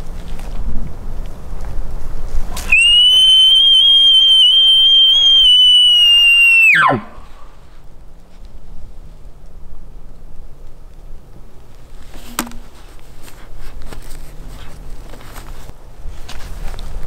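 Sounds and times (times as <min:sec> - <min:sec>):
elk bugle call whistle: 0:02.6 - 0:07.4.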